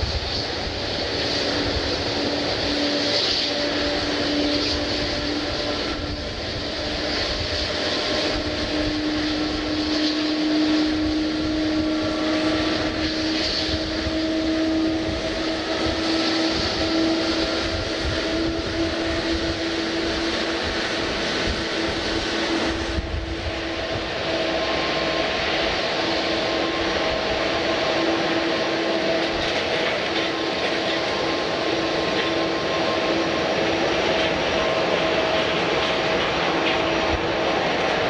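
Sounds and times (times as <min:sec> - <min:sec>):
jet engines running: 0:00.0 - 0:38.0.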